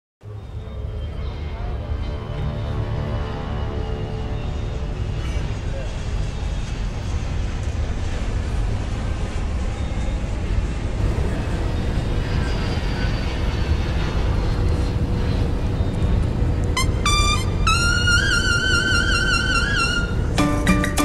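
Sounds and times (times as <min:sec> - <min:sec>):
trumpet music: 0:16.8 - 0:21.0.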